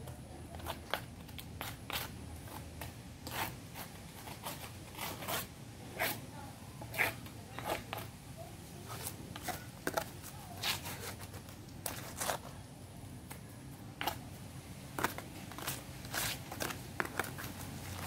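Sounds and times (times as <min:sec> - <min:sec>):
trowel scraping gritty soil: 0:03.2 - 0:06.2, 0:06.9 - 0:08.1, 0:15.0 - 0:18.0.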